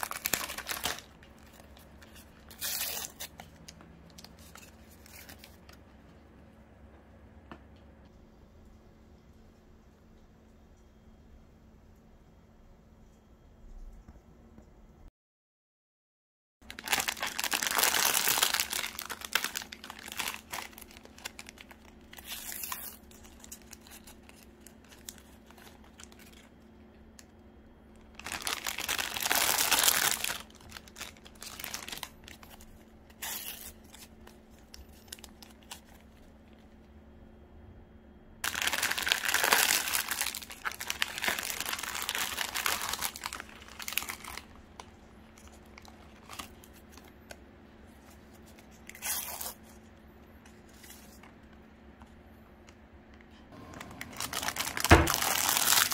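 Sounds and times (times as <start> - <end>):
plastic wrappers crinkling and tearing: 0.0 - 5.9, 16.6 - 27.2, 27.9 - 36.8, 38.4 - 51.6, 53.5 - 55.9.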